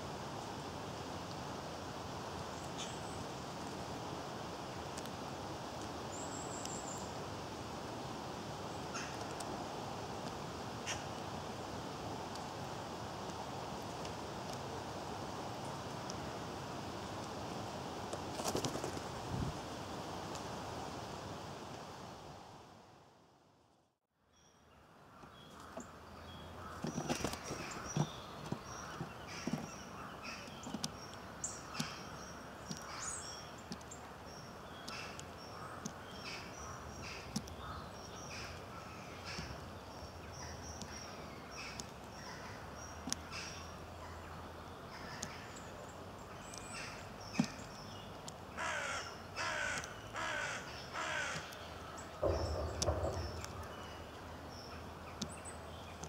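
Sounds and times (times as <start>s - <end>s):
small birds chirping: 5.8s - 7.2s, 24.3s - 56.0s.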